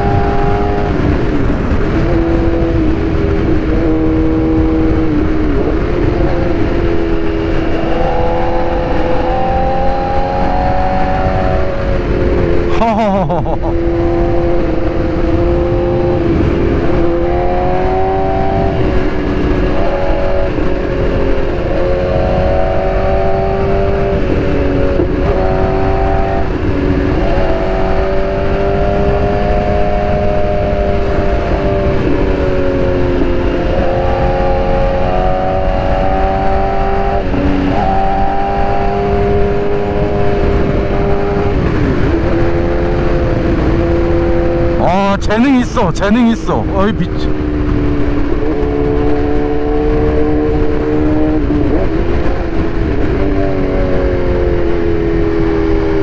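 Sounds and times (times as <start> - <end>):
wind noise: 0.0 - 27.9.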